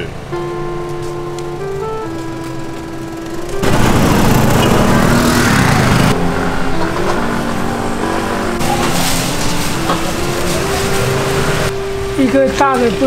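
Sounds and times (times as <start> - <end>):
busy street traffic: 0.0 - 13.0
vehicle passing close: 1.8 - 11.8.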